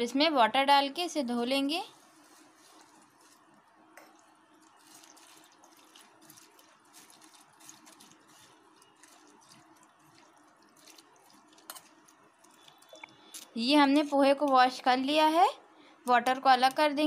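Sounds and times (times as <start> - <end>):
spoon stirring wet flakes ticking: 2.0 - 14.9
water trickling and splashing: 2.2 - 14.4.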